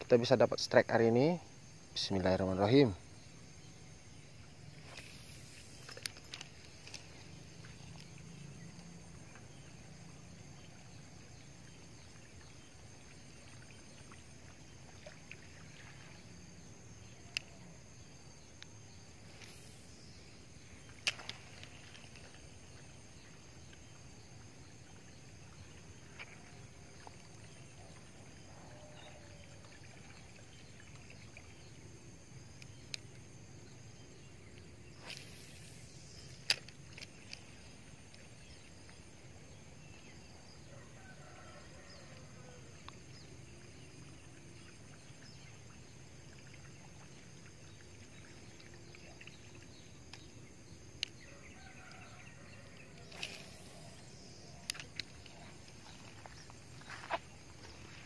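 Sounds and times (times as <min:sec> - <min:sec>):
faint steady outdoor noise: 0:00.0 - 0:58.0
fishing rod swishes: 0:04.7 - 0:07.2, 0:34.9 - 0:37.6, 0:53.0 - 0:56.2
fishing reel clicks: 0:35.0 - 0:37.4.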